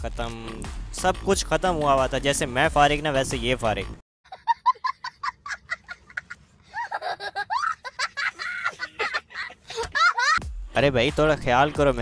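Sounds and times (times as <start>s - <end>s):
young child laughing: 4.3s - 10.4s.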